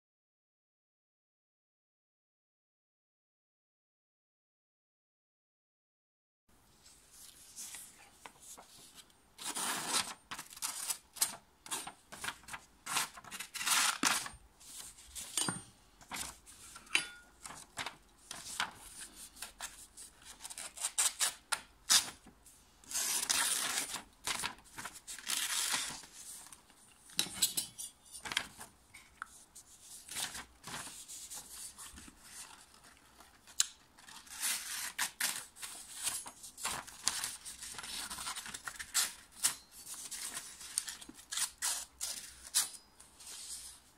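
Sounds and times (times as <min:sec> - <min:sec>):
paper rustling: 0:06.8 - 0:27.2, 0:28.1 - 0:43.9
knife slicing paper: 0:09.4 - 0:15.4.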